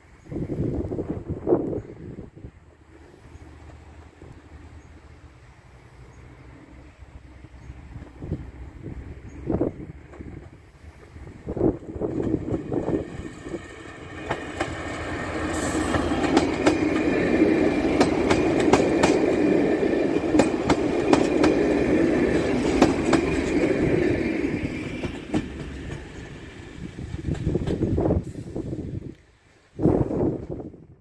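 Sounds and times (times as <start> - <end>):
diesel train passing: 0.0 - 31.0
wheels clicking on track: 9.2 - 28.0.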